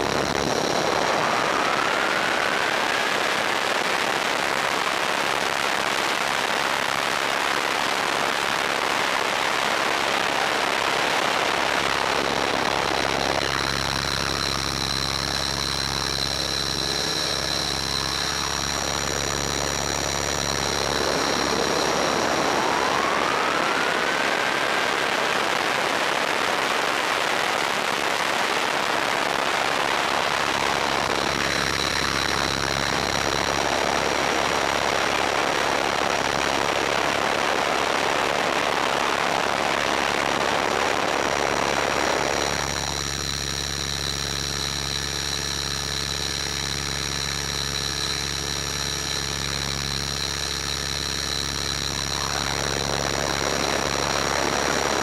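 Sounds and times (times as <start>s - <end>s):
helicopter motor and rotor whine: 0.0s - 6.2s, 7.6s - 36.5s, 39.2s - 55.0s
low hum: 10.6s - 25.4s, 41.4s - 55.0s.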